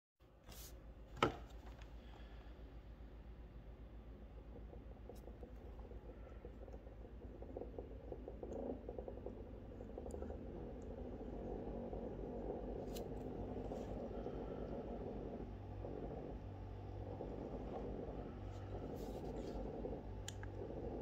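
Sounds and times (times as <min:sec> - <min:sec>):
pump motor hum: 0:02.0 - 0:21.0
water churning: 0:04.2 - 0:21.0.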